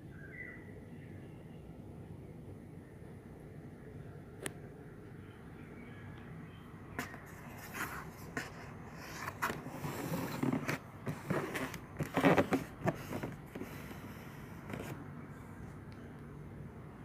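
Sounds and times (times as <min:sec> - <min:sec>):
shoe and cardboard box rustling: 0:07.0 - 0:15.0.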